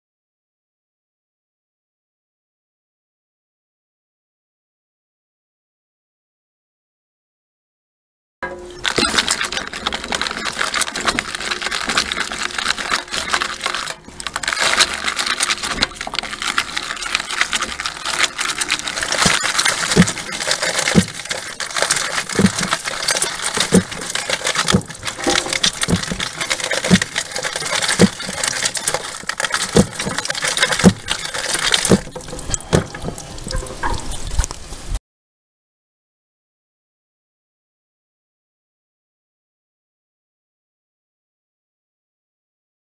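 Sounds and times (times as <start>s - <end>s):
grapes crackling in crusher: 8.5s - 34.7s
juice splashing into tub: 8.9s - 34.6s.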